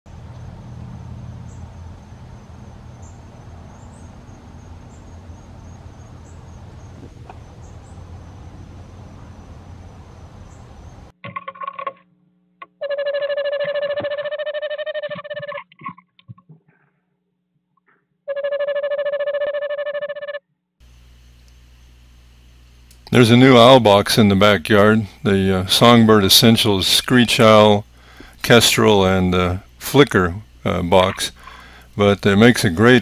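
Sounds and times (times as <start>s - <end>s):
steady hiss and low hum: 0.1s - 11.1s, 20.8s - 33.0s
owl trill: 12.8s - 15.6s, 18.3s - 20.4s
screech owl calling: 12.8s - 15.6s.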